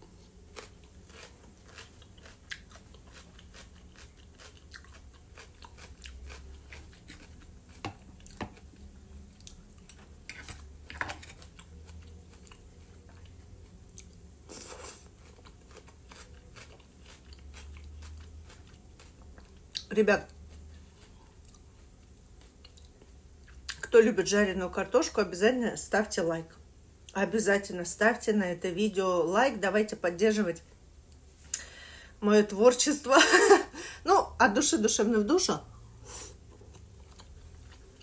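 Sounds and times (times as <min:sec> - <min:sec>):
person chewing food: 0:00.0 - 0:23.8, 0:35.8 - 0:38.0.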